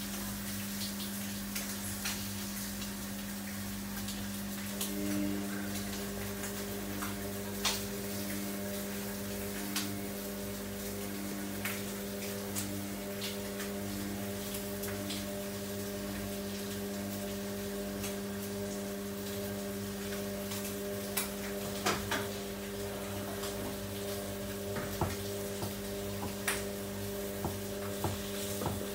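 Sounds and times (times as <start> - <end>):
washing machine motor hum: 0.0 - 28.9
washing machine clicks and knocks: 24.7 - 26.6, 27.5 - 28.9.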